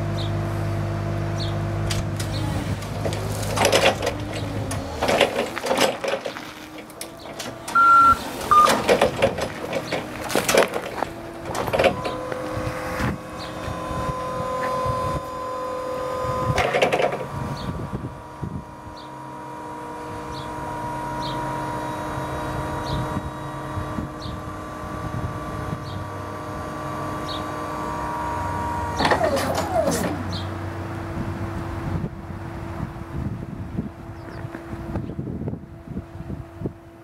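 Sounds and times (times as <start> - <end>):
forklift motor hum: 0.0 - 37.0
electric whine: 0.5 - 35.7
clunks and rattles: 1.8 - 15.2, 16.2 - 17.9, 28.9 - 30.6
two-note beep: 7.8 - 8.7.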